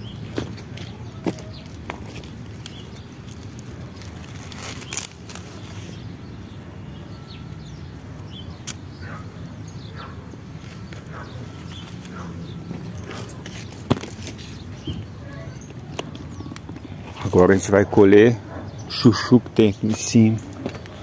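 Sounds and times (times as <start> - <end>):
leaves rustling: 3.2 - 5.9.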